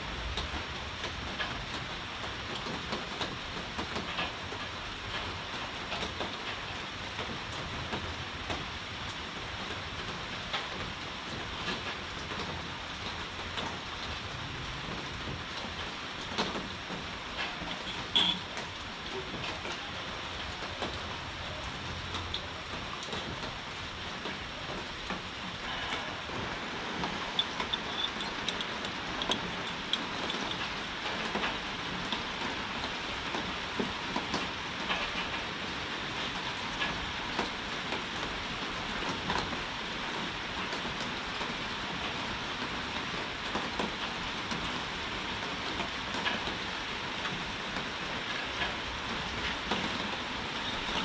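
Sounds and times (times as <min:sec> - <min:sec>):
heavy rain hissing: 0:06.6 - 0:45.8.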